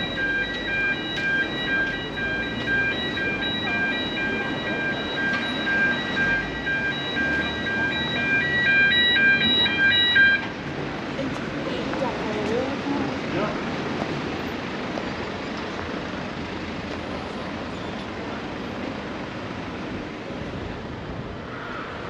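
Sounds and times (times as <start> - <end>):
high beeping melody: 0.0 - 10.5
street noise: 0.0 - 22.0.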